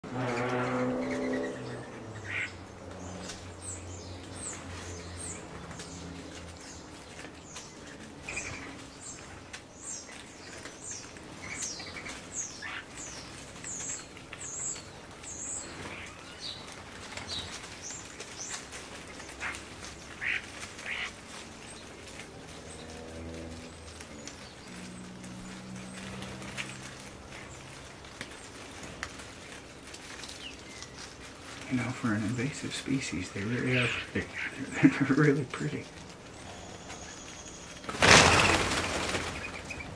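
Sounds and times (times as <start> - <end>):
wing flutters: 0.0 - 39.9
birds whistling and chirping: 36.3 - 39.9.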